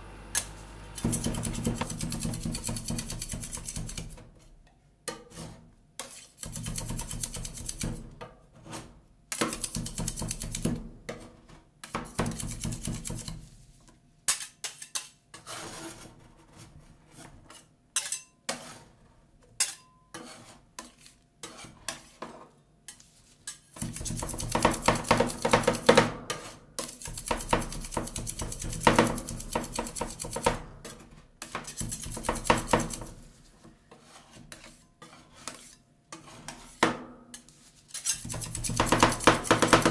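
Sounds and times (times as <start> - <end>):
metal spatulas scraping steel plate: 0.4 - 4.2, 5.2 - 8.0, 14.3 - 19.0, 19.6 - 25.6, 26.3 - 33.3, 33.9 - 39.9.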